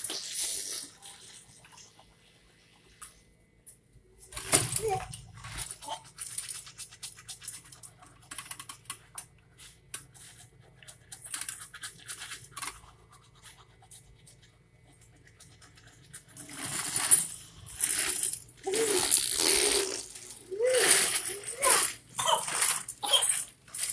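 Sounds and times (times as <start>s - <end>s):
plastic toy clicks and scratching: 4.4s - 14.5s, 15.1s - 23.9s
toddler sucking fingers: 18.6s - 23.2s
toddler vocalizing: 18.6s - 23.4s.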